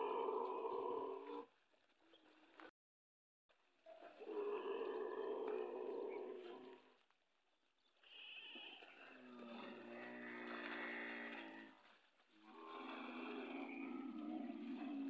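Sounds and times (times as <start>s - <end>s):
camels groaning: 4.2s - 6.9s, 8.4s - 15.0s.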